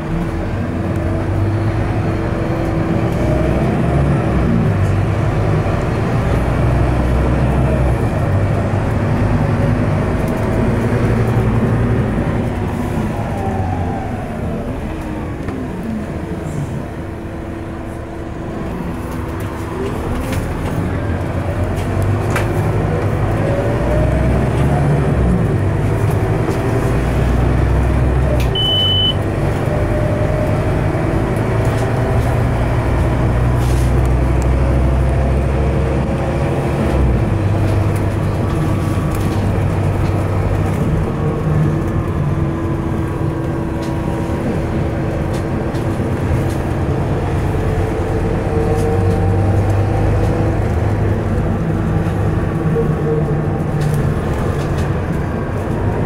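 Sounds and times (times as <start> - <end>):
bus engine rumble: 0.0 - 56.0
short high beep: 28.6 - 29.2.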